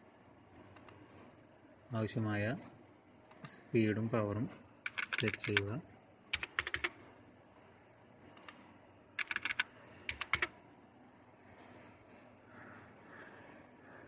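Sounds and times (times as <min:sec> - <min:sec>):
computer keyboard typing: 0:04.9 - 0:05.7, 0:06.3 - 0:07.0, 0:09.2 - 0:10.5.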